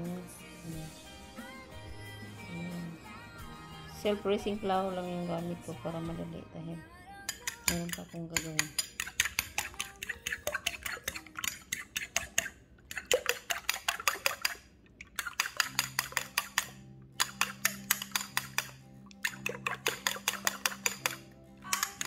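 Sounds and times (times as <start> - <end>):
soft background music: 0.0 - 14.6, 15.2 - 22.0
fork clinking against bowl: 7.3 - 22.0.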